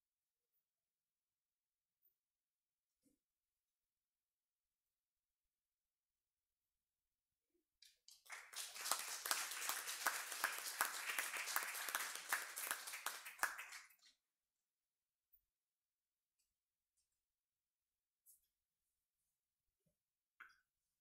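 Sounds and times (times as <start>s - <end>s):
small audience applauding: 7.8s - 14.1s.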